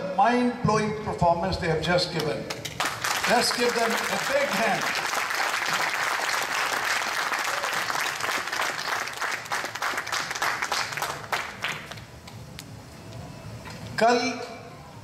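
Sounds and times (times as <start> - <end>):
audience applauding: 2.6 - 12.1.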